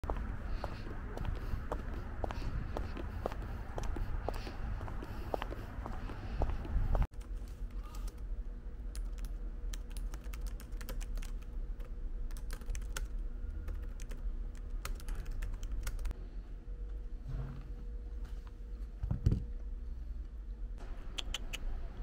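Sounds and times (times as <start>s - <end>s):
low room hum: 0.0s - 22.0s.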